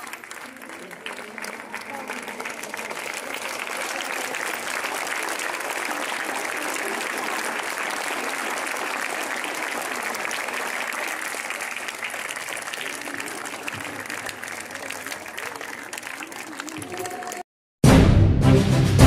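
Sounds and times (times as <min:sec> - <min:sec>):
crowd of children clapping: 0:00.0 - 0:17.5.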